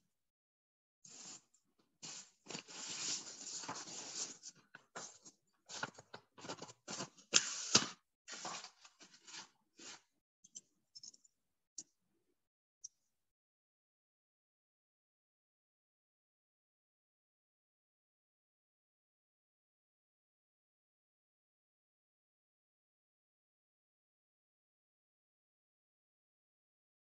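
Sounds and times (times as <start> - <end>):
paper rustling and crinkling: 2.0 - 10.1.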